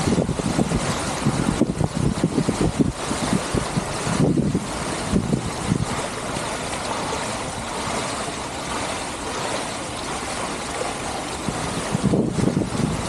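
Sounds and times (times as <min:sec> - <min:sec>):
fountain jets splashing into pool: 0:00.0 - 0:13.0
water spilling into basin: 0:00.0 - 0:13.0.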